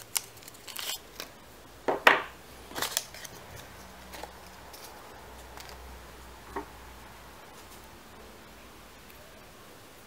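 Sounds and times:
plastic items on wooden table: 0.0 - 5.9.

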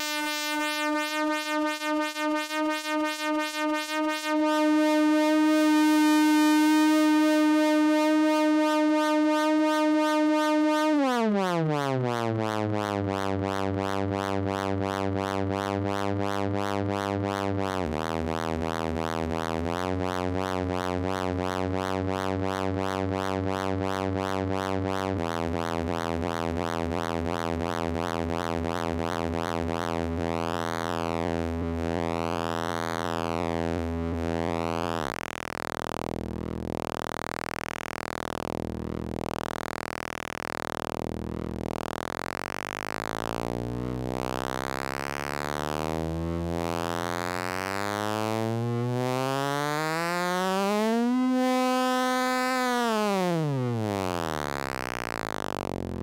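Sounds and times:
buzzy synthesizer drone: 0.0 - 27.8, 33.3 - 56.0.

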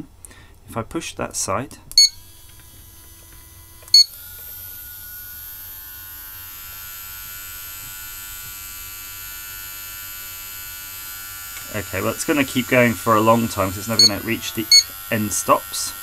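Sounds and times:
small gear motor whining: 2.0 - 16.0
short electronic beep: 14.0 - 14.9.

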